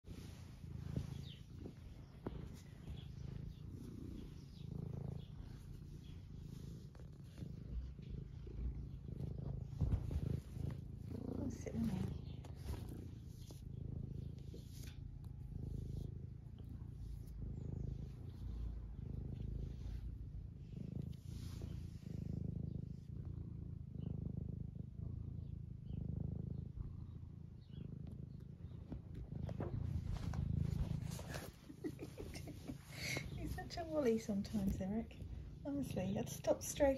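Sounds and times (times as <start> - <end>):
cat purring: 0.0 - 36.9.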